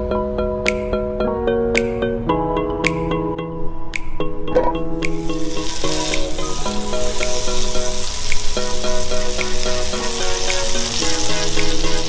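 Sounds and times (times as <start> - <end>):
background music with held notes: 0.0 - 12.0
butter sizzling in a skillet: 5.1 - 12.0.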